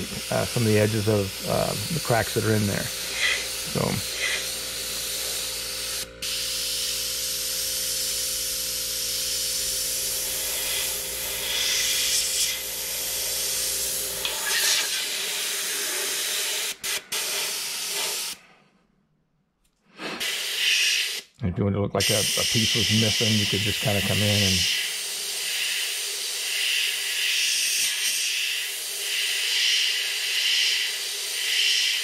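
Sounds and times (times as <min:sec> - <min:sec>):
steady machine hum: 0:00.0 - 0:16.2, 0:22.0 - 0:27.1
airbrush hissing: 0:00.0 - 0:18.4, 0:19.9 - 0:21.3, 0:22.0 - 0:32.0.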